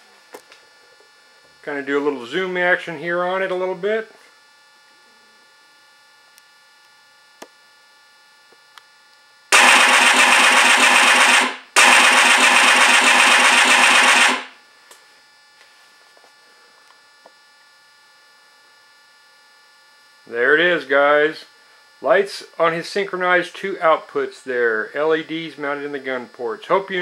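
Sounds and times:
steady electrical hum: 0:00.0 - 0:27.0
simulated machine-gun fire: 0:09.5 - 0:14.6.

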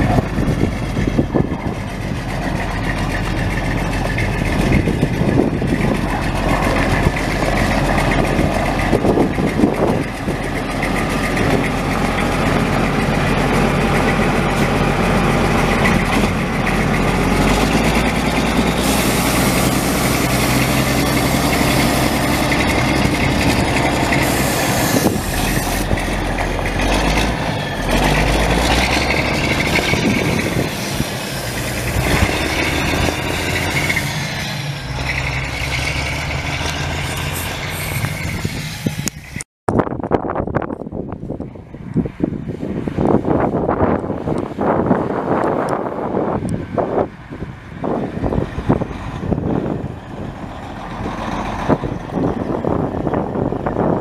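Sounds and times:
diesel truck engine idling: 0:00.0 - 0:39.4
hiss: 0:18.8 - 0:22.6, 0:24.2 - 0:25.8, 0:30.4 - 0:32.6.

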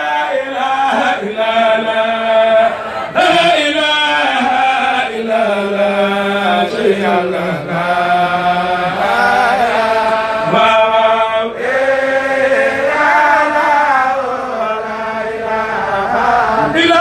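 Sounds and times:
man chanting into a microphone: 0:00.0 - 0:12.0, 0:16.1 - 0:17.0.

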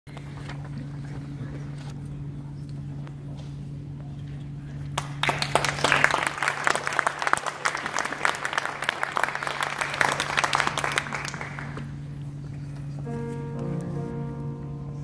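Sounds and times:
steady low hum: 0:00.1 - 0:15.0
audience applauding: 0:04.9 - 0:12.3.

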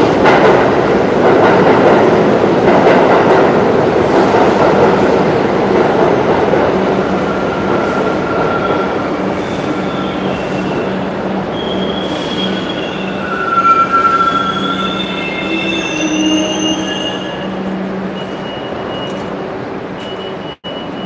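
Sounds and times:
subway train rumble: 0:00.0 - 0:21.0
wavering wheel squeal: 0:08.0 - 0:19.2.

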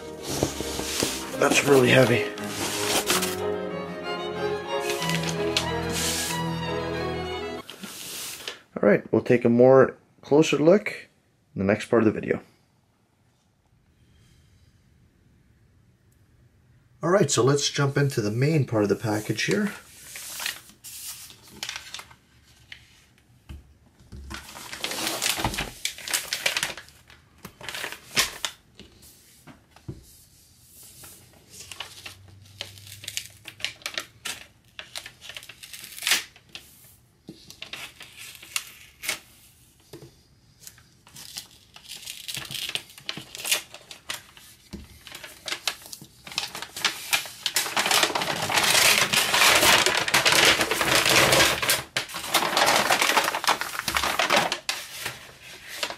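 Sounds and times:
paper crinkling and rustling: 0:00.0 - 0:03.5, 0:04.6 - 0:06.5, 0:07.6 - 0:08.6, 0:19.0 - 0:23.1, 0:24.3 - 0:29.0, 0:30.8 - 0:40.0, 0:40.6 - 0:55.9
paper tearing: 0:00.0 - 0:03.5, 0:04.7 - 0:06.5, 0:24.6 - 0:26.8, 0:45.1 - 0:55.9.

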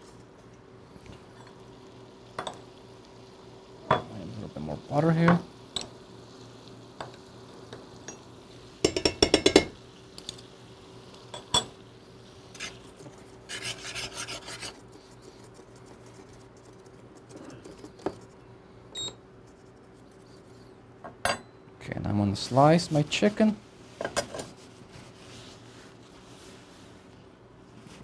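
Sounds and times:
metal spoon scraping pan: 0:13.5 - 0:14.8.

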